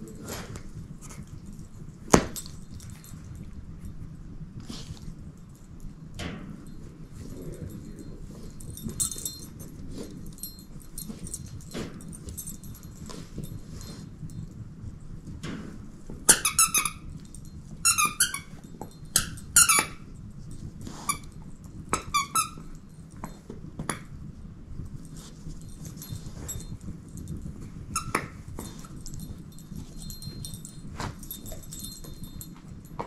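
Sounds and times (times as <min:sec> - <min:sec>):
dog toy squeaking: 0:16.3 - 0:17.0, 0:17.8 - 0:18.6, 0:19.2 - 0:20.0, 0:22.0 - 0:22.6, 0:28.0 - 0:28.2.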